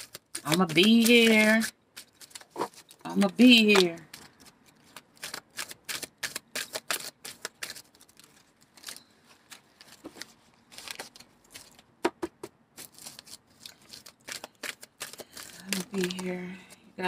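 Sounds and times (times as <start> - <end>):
cards being shuffled: 0.0 - 11.8.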